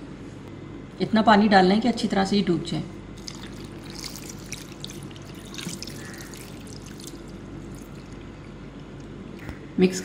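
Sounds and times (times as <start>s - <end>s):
small splashes: 3.2s - 8.6s
water pouring into bowl: 3.2s - 8.6s.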